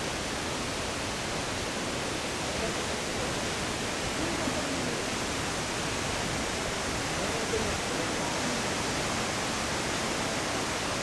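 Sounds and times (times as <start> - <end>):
fast-flowing river water: 0.0 - 11.0.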